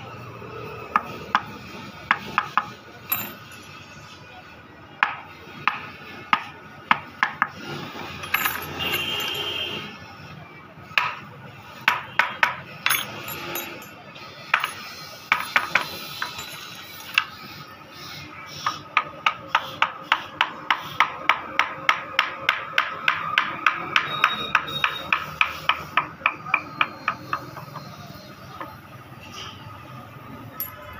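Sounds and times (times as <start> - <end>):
mallet striking chisel into wood: 18.6 - 27.4.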